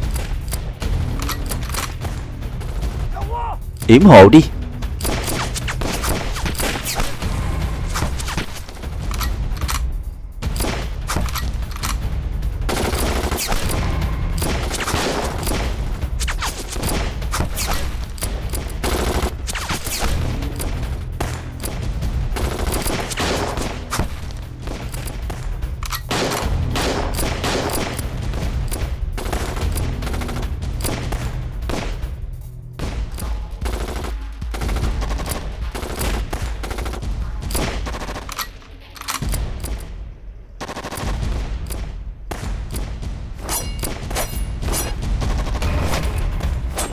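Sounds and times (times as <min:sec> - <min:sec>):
rifle shots: 0:12.7 - 0:32.0.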